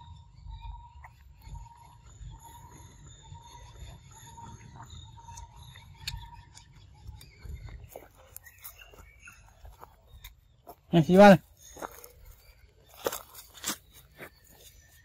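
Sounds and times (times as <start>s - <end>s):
faint steady high tones: 0.0s - 15.0s.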